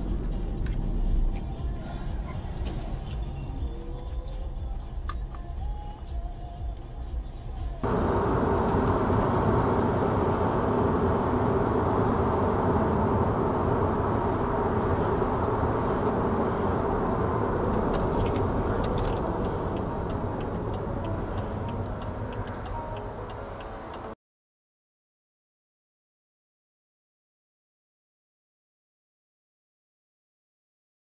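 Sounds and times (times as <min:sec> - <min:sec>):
car engine and road noise: 0:00.0 - 0:24.2.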